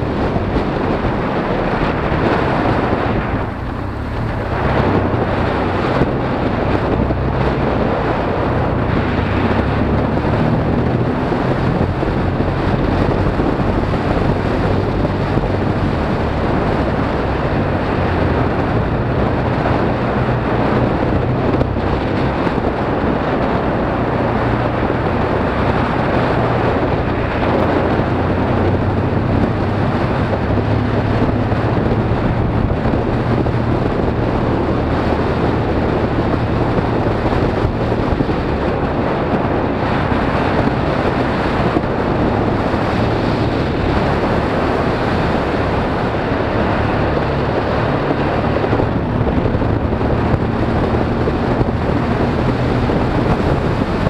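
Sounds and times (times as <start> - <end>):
motorcycle engine running: 0.0 - 54.0
wind noise on microphone: 0.0 - 54.0.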